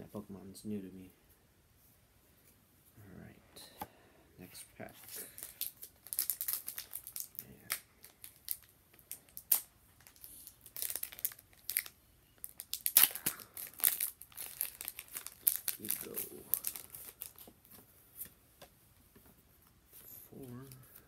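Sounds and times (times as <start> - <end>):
plastic wrapper crinkling: 5.1 - 17.8
wrapper tearing: 5.2 - 17.5.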